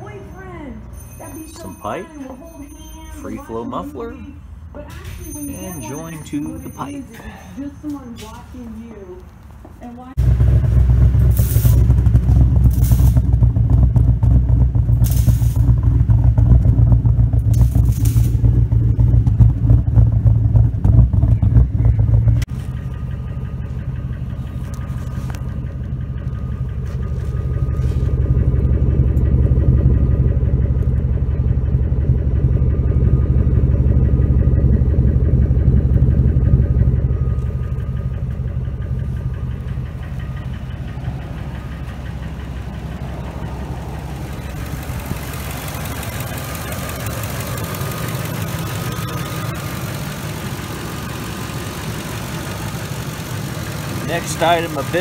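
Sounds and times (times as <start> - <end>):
car engine idling: 0.0 - 55.0
engine bay hiss: 11.1 - 11.9.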